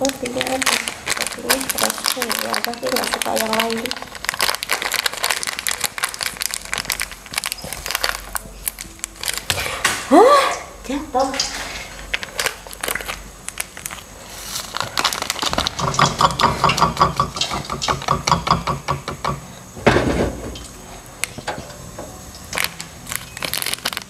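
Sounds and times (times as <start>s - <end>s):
plastic sachets crinkling and tearing: 0.0s - 10.1s, 11.2s - 16.8s, 22.4s - 24.0s.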